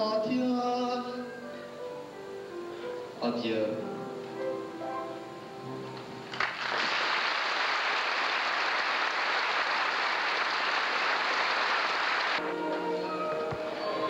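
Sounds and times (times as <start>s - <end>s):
audience applause: 6.3s - 12.4s.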